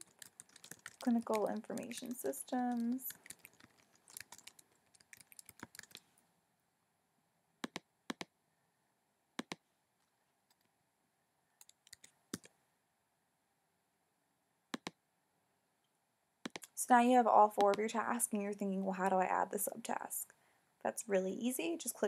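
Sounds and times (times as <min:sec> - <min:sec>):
computer keyboard typing: 0:00.0 - 0:06.1, 0:11.6 - 0:12.5, 0:16.5 - 0:16.7
mouse clicks: 0:14.8 - 0:15.0.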